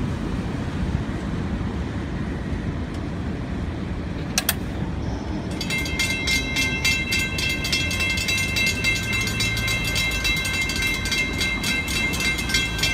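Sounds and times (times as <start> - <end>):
low traffic rumble: 0.0 - 12.9
railroad crossing bell ringing: 5.2 - 12.9.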